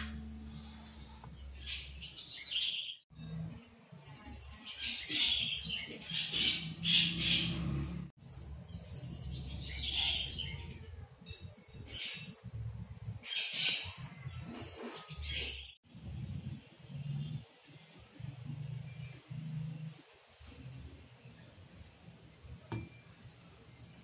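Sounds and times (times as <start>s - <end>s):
birds chirping: 0.0s - 8.0s, 8.6s - 12.5s.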